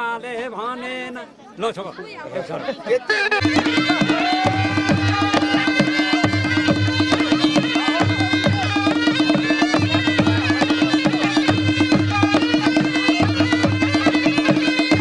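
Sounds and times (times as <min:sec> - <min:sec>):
reed pipe melody: 0:03.2 - 0:15.0
drums and rapid percussion: 0:03.4 - 0:15.0.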